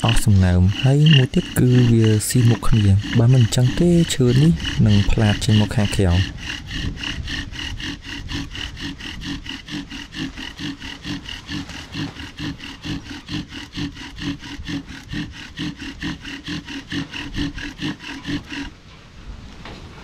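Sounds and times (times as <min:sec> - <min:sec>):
bow drill rasping squeak: 0:00.0 - 0:06.3.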